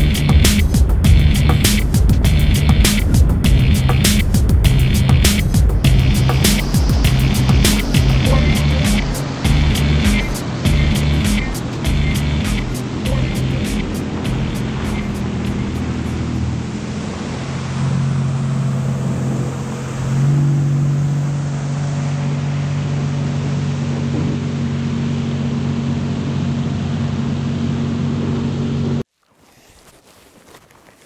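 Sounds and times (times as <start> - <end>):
jet ski engine drone: 0.0 - 29.0
water spray hiss: 4.0 - 11.9
faint crackles: 29.1 - 31.0.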